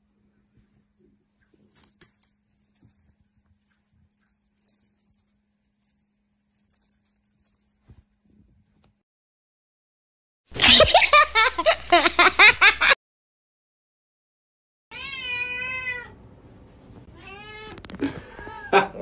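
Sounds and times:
low steady hum: 0.0s - 9.0s
small bell jingling: 1.7s - 7.8s.

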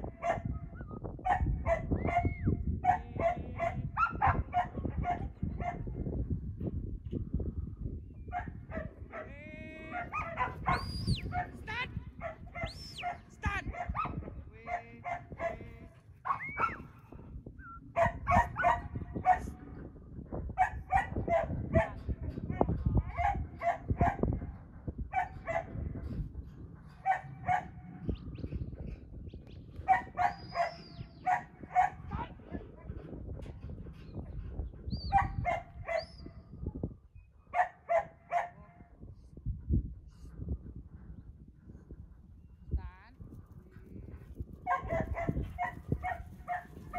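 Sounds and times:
wind rumbling on microphone: 0.0s - 46.9s
dog barking: 0.2s - 0.5s, 1.2s - 5.9s, 8.3s - 9.3s, 9.9s - 11.6s, 12.2s - 15.6s, 16.2s - 16.9s, 17.9s - 19.5s, 20.6s - 24.4s, 25.1s - 25.8s, 27.0s - 27.8s, 29.8s - 32.2s, 35.1s - 36.2s, 37.5s - 38.6s, 44.6s - 46.9s.

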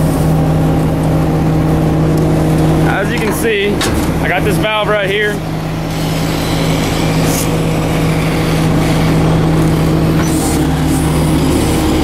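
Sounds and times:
diesel truck engine running: 0.0s - 12.0s
hydraulics rumbling: 0.0s - 12.0s.

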